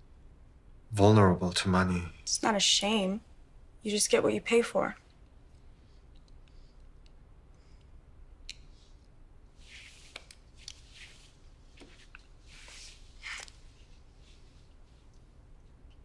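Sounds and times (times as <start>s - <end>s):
clothes rustling: 8.7s - 16.0s.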